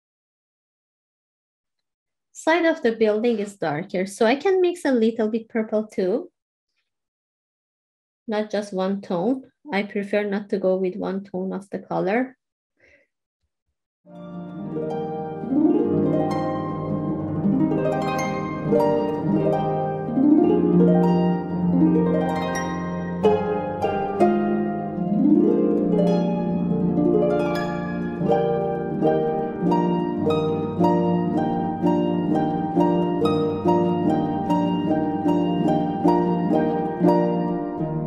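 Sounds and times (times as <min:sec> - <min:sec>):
plucked harp-like string music: 0:14.1 - 0:38.0.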